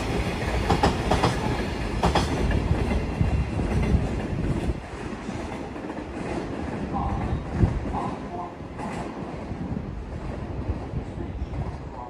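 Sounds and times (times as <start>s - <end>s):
wheels clacking over rail joints: 0.1s - 7.4s.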